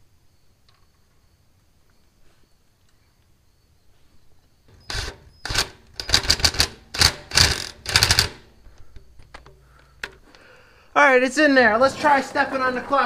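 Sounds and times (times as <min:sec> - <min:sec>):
ratchet wrench clicking: 0:04.8 - 0:08.5.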